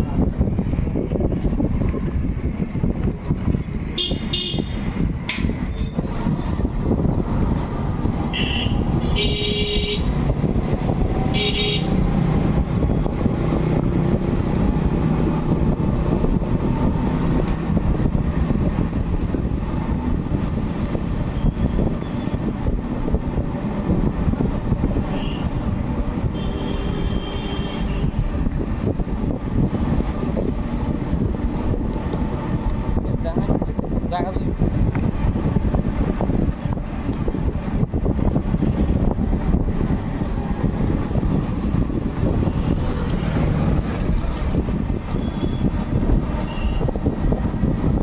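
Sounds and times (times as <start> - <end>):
road and wind rumble: 0.0 - 48.0
vehicle horn toots: 4.0 - 4.8, 8.3 - 10.1, 11.3 - 12.0, 25.1 - 25.5, 26.4 - 28.2, 46.4 - 46.9.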